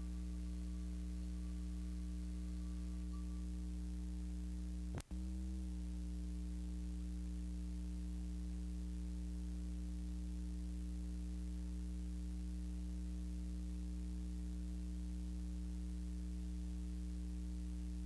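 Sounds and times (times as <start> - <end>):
electrical hum: 0.0 - 18.0.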